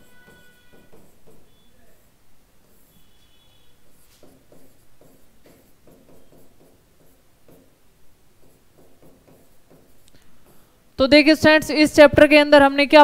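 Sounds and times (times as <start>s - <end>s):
marker squeaking on a whiteboard: 0.0s - 7.8s, 8.4s - 10.6s.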